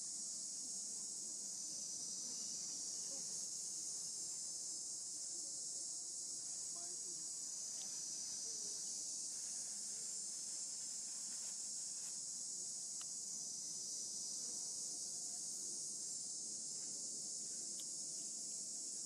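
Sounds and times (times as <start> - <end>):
faint clicks: 17.7 - 17.9.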